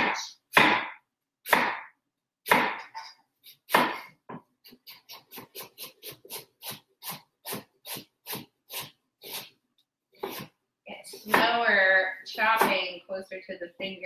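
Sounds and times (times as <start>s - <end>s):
knife slicing cabbage: 2.5s - 9.6s, 10.2s - 10.6s.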